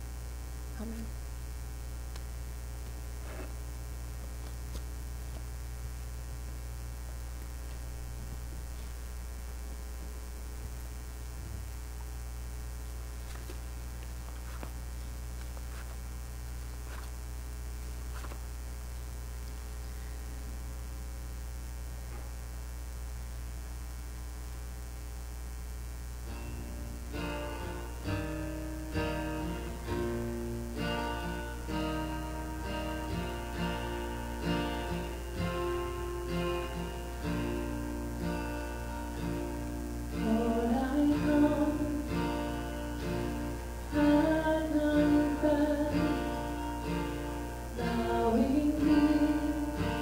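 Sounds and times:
electrical mains hum: 0.0s - 50.0s.

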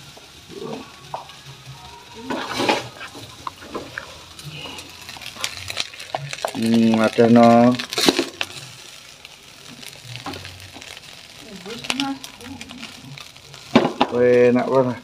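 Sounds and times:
light sizzle: 0.0s - 15.0s
metal spatula scraping in a wok: 2.1s - 7.1s.

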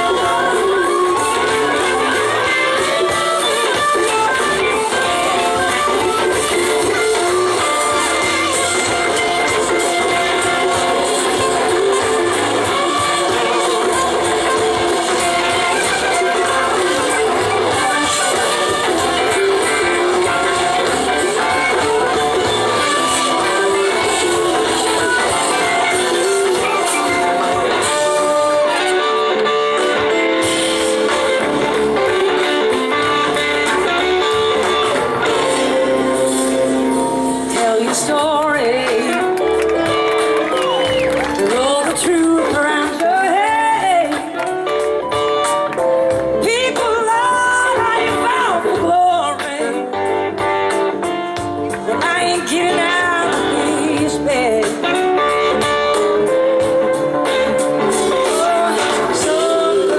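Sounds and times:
blues-rock band playing: 0.0s - 59.9s
electric guitar with pitch bends: 0.0s - 59.9s
woman singing: 37.4s - 39.5s, 41.2s - 44.4s, 46.3s - 50.0s, 51.7s - 55.1s, 58.1s - 59.9s.

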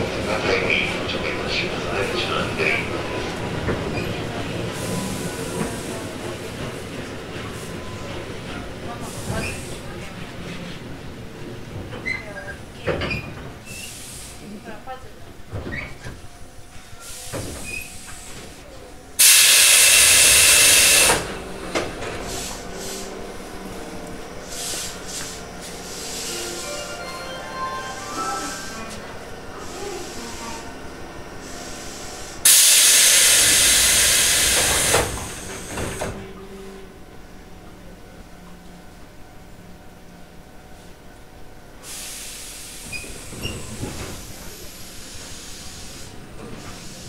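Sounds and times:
compressed air hissing from a train: 13.7s - 14.6s, 17.0s - 18.6s, 19.2s - 21.3s, 22.2s - 23.4s, 24.4s - 26.8s, 31.4s - 36.1s, 41.8s - 47.0s.

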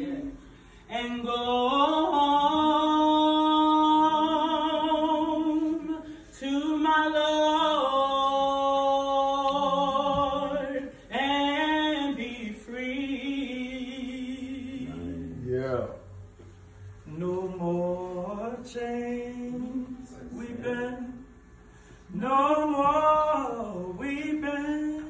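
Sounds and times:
person singing unaccompanied: 0.0s - 15.4s.

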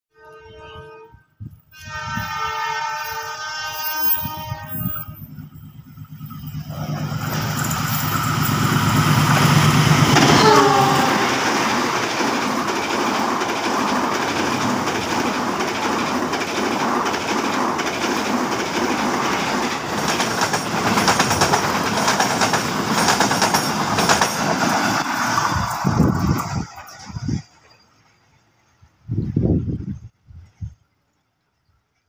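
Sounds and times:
train coaches passing: 1.8s - 29.8s
wheels clattering over rail joints: 5.4s - 28.3s.

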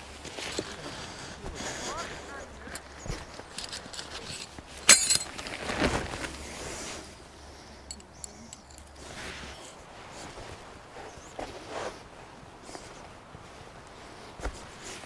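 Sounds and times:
fly sheet rustling: 2.2s - 7.0s
metal tent pegs clinking: 2.6s - 6.3s, 7.9s - 9.2s.

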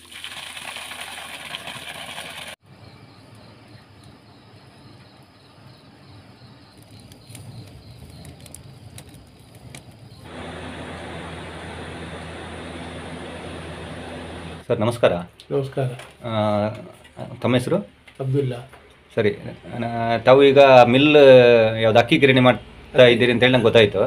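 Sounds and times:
fire crackles: 6.4s - 14.6s
wood fire rushing: 6.8s - 14.6s.

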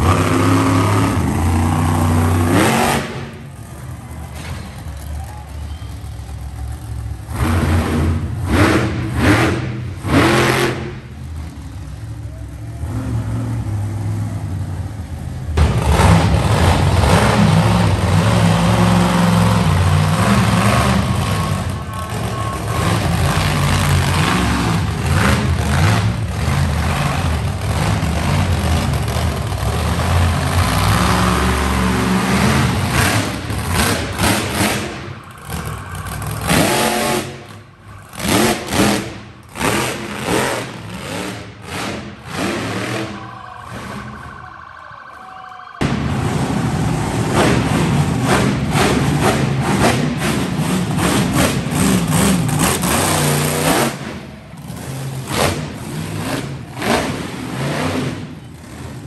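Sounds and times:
monster truck engines revving: 0.0s - 45.2s, 45.8s - 59.0s
faint steady high tone: 19.5s - 25.0s, 33.4s - 39.4s, 42.0s - 47.4s.

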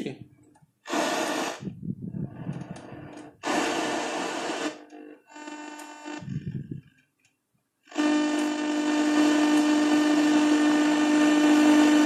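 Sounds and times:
buzzing test tone: 3.0s - 6.9s, 7.8s - 12.0s.

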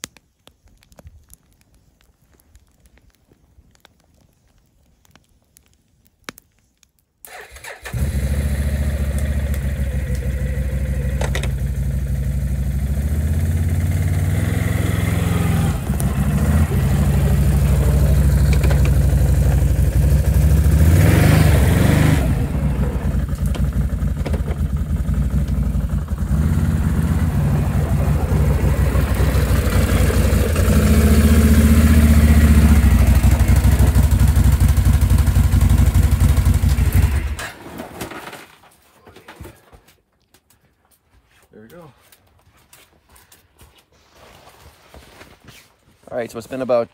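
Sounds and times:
atv engine revving: 7.4s - 37.5s.

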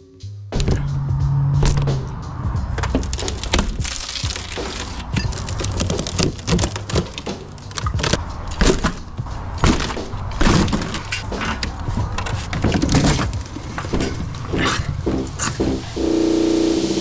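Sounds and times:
wooden boards knocking and scraping: 2.6s - 14.8s.

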